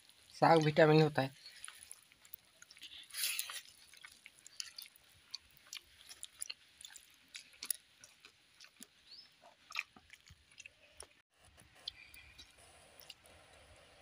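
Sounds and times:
wet chewing mouth clicks: 1.4s - 11.2s.

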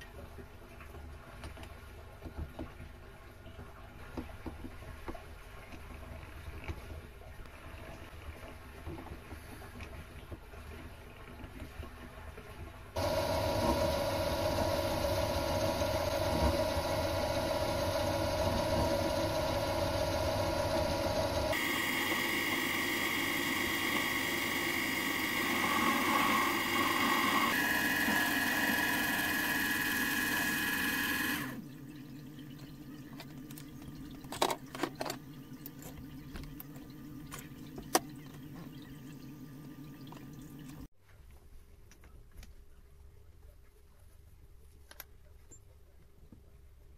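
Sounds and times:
metal lathe whining: 13.0s - 31.6s.

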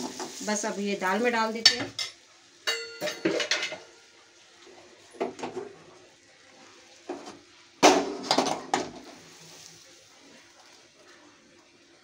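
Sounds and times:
cookware clinks and scrapes: 1.7s - 3.9s.

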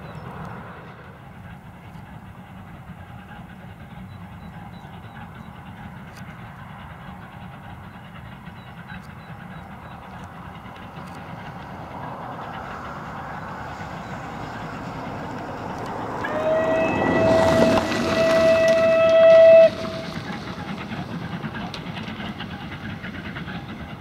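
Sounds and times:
steam locomotive running: 0.0s - 24.0s
steam whistle blast: 16.2s - 20.2s.

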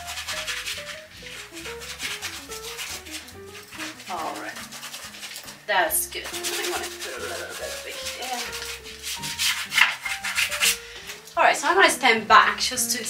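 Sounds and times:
paintbrush scrubbing on canvas: 0.0s - 10.9s
quiet background music: 0.0s - 13.0s.

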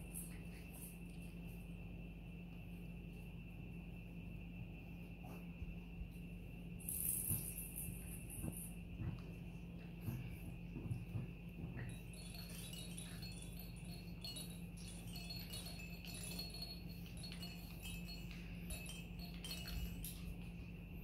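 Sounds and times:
plastic toys jingling and clattering: 6.8s - 8.7s, 11.8s - 20.7s.

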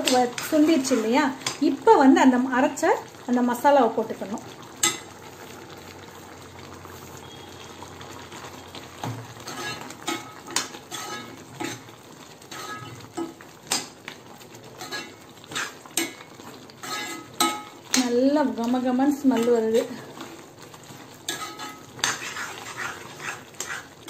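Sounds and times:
spoon scraping and knocking pan: 0.0s - 1.6s, 9.0s - 11.9s, 12.5s - 14.0s, 14.7s - 18.1s, 21.2s - 24.0s
gravy simmering and bubbling: 0.0s - 24.0s.

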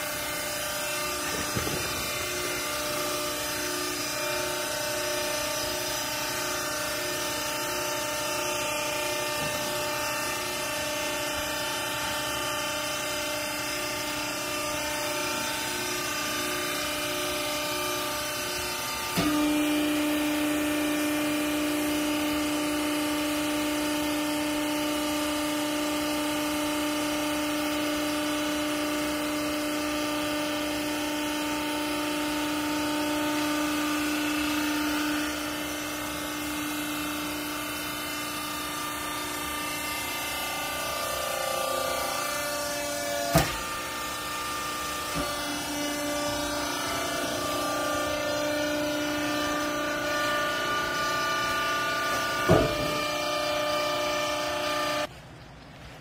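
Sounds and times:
hydraulic power unit humming: 0.0s - 56.0s.

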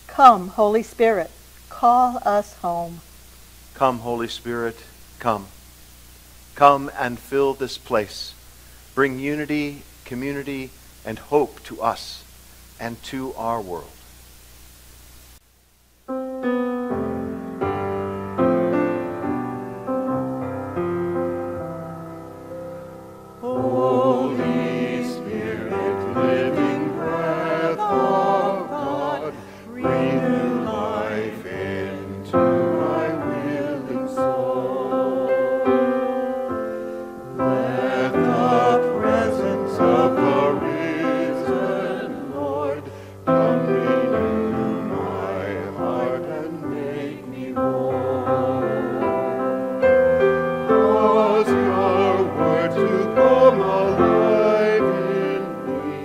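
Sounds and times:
piano accompaniment: 16.1s - 56.0s
group singing a hymn: 23.4s - 56.0s.

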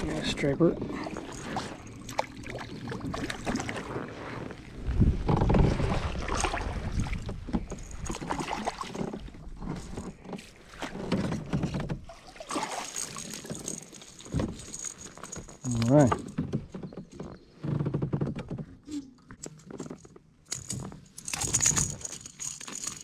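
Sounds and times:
fish splashing beside kayak: 1.0s - 4.7s, 5.5s - 15.2s.

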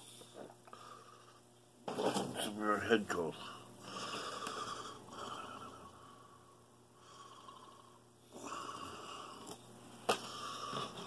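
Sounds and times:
man breathing heavily: 3.4s - 7.7s, 10.1s - 11.0s.

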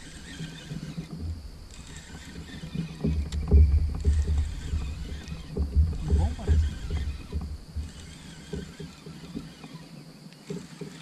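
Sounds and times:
low knocks on kayak hull: 3.0s - 9.4s.

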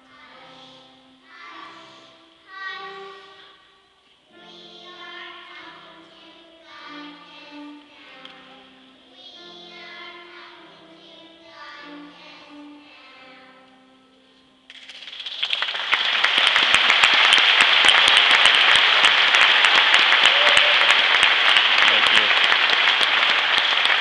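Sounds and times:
children's choir singing softly: 0.0s - 14.8s, 15.7s - 24.0s
audience applause: 15.0s - 24.0s.

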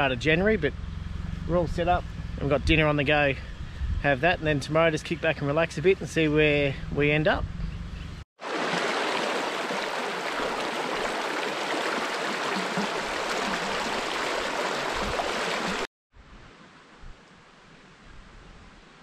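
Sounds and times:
river rushing over rocks: 8.4s - 15.8s.

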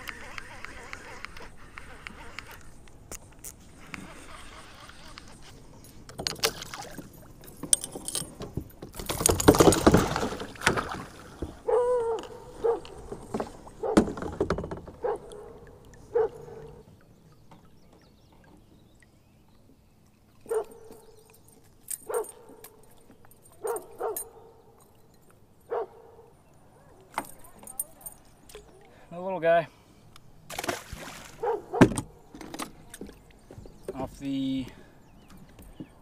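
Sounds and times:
short pitched calls: 0.0s - 2.8s, 3.8s - 5.6s
fish splashing at water surface: 30.5s - 31.4s.

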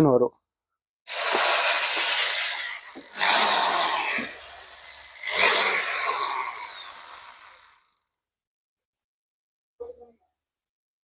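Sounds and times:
impact drill running: 1.1s - 8.0s.

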